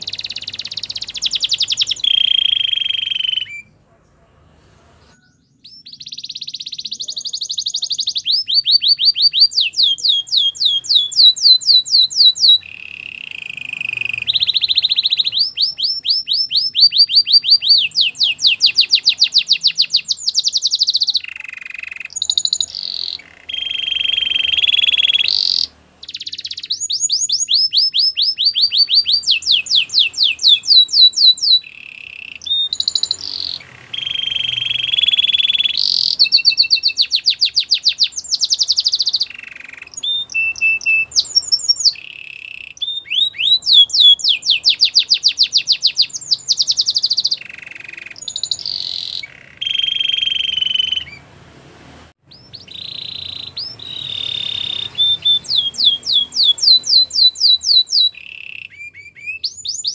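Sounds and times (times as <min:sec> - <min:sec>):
canary singing trills: 0:00.0 - 0:04.3, 0:05.0 - 0:51.4, 0:52.2 - 0:59.9.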